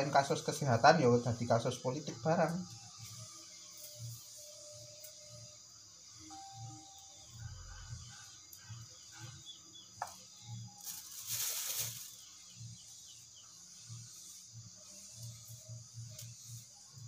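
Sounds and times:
faint chirps: 0.0s - 17.0s
steady high hiss: 0.0s - 17.0s
rustle: 10.8s - 12.3s.

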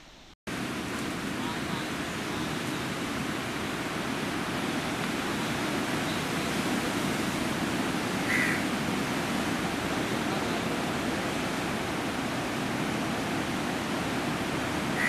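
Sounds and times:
wind: 0.0s - 15.0s
sea water rushing: 0.5s - 15.0s
short bird call: 8.3s - 8.6s.

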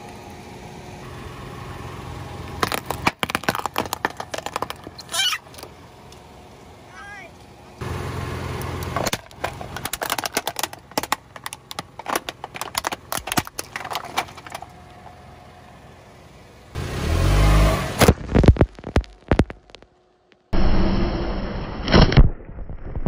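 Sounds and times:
plastic cracking under tyre: 2.6s - 5.7s, 8.9s - 14.7s, 18.0s - 20.5s
car engine revving: 14.6s - 19.8s.

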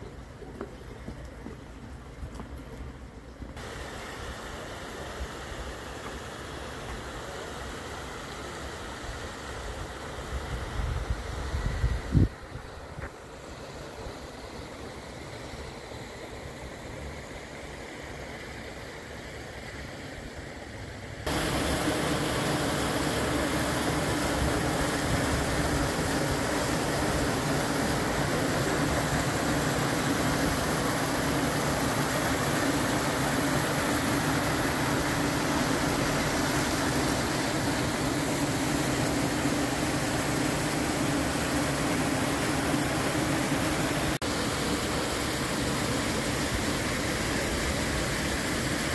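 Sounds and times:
water rushing through wooden troughs: 21.3s - 48.9s.

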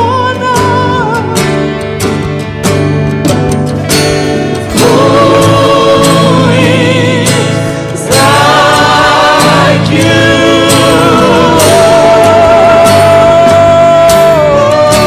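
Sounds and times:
man singing: 0.0s - 1.5s, 4.7s - 15.0s
strummed acoustic guitar: 0.0s - 15.0s
backing singers: 4.7s - 15.0s.

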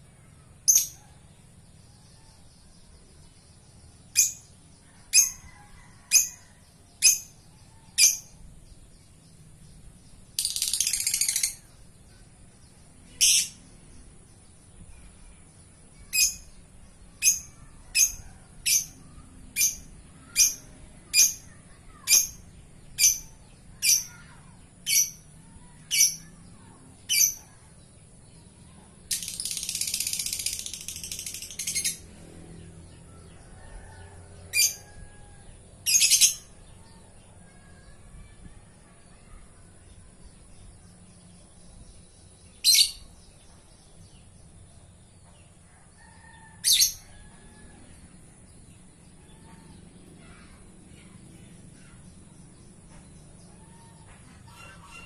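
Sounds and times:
lovebird chattering trill: 10.4s - 11.7s
lovebird chirping: 10.4s - 12.2s, 13.2s - 13.6s, 42.5s - 43.2s.

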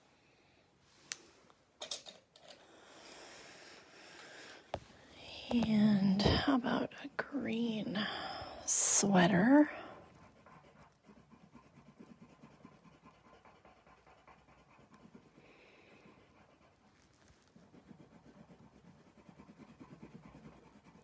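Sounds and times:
pencil scratching on paper: 5.5s - 21.0s.

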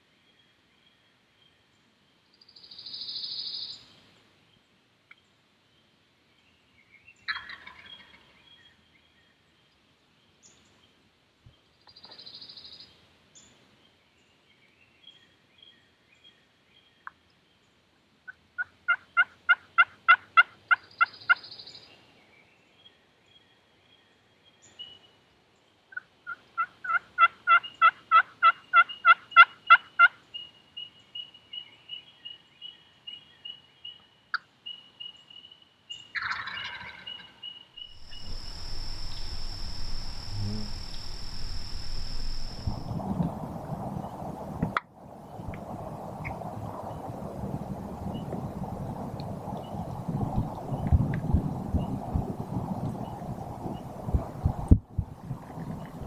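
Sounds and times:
turkeys yelping: 36.2s - 37.2s
breathy hissing bursts: 38.0s - 43.0s.

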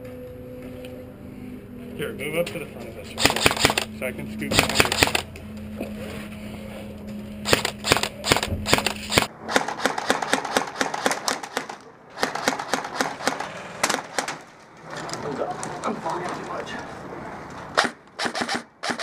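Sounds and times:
low steady hum: 0.0s - 18.8s
airsoft rifles firing bursts: 3.2s - 3.9s, 4.6s - 5.3s, 7.4s - 14.5s, 17.8s - 19.0s.

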